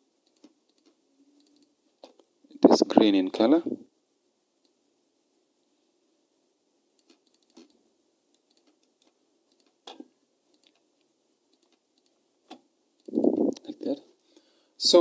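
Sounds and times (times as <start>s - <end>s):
computer mouse clicks: 0.2s - 1.7s, 7.0s - 10.8s, 11.5s - 13.6s.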